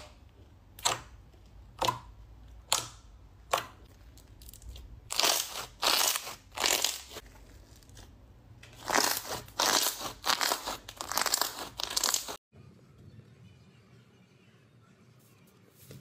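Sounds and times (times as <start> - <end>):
slime squelching by hand: 0.0 - 12.4.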